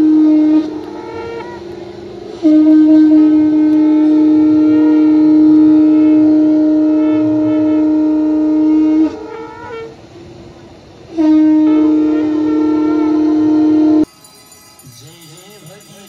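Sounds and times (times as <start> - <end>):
conch shells blown: 0.0 - 10.0, 11.1 - 16.0.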